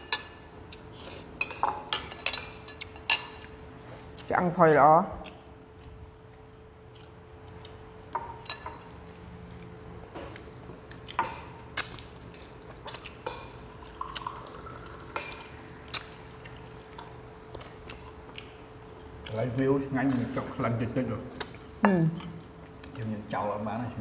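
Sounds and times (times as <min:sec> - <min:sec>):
faint steady hum: 0:00.0 - 0:24.0
wet eating sounds: 0:05.2 - 0:07.9, 0:08.6 - 0:19.5.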